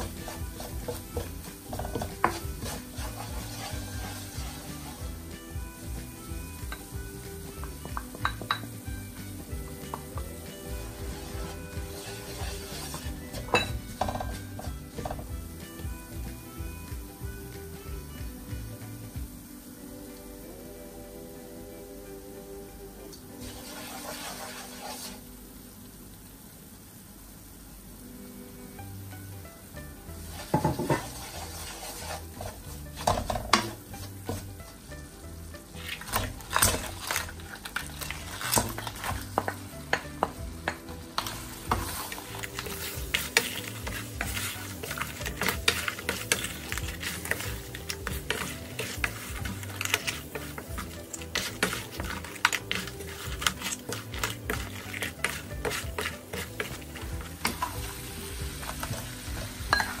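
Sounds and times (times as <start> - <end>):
wooden spoon knocking and scraping: 0.0 - 4.6, 11.1 - 15.4, 30.5 - 31.2, 35.8 - 57.9
oil sizzling in wok: 0.0 - 60.0.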